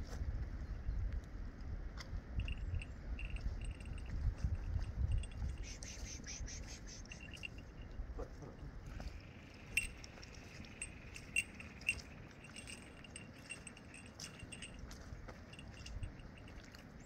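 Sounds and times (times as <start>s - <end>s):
fishing net clinking: 2.4s - 4.1s, 7.1s - 7.8s, 9.6s - 16.7s
faint high chirping: 5.4s - 8.0s.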